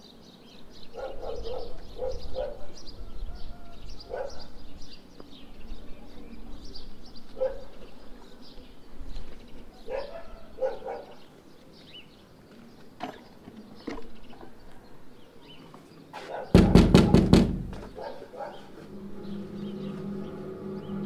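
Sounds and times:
heavy low thuds: 16.6 - 18.0
sustained music chord: 18.8 - 21.0.

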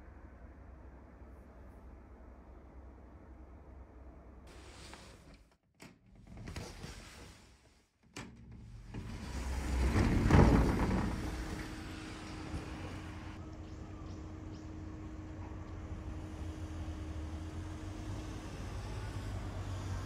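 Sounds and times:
sliding window moving: 6.2 - 13.4
outdoor hiss: 9.0 - 13.4.

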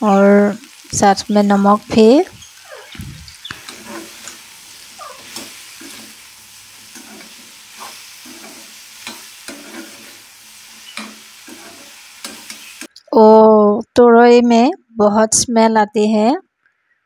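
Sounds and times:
food sizzling in oil: 0.0 - 12.9
spatula scraping a pan: 2.3 - 12.9.

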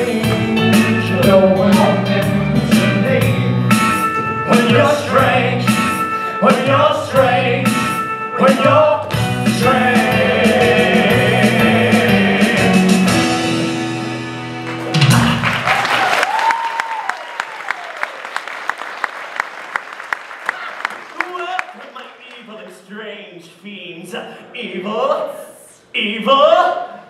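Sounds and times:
singing over rock backing track: 0.0 - 13.9
audience applause: 14.6 - 22.4.

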